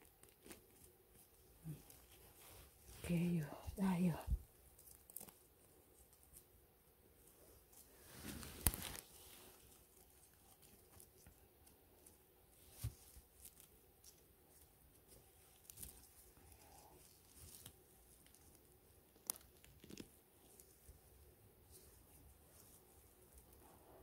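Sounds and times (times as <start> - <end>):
dry twigs crackling: 0.0 - 6.5, 7.6 - 20.9.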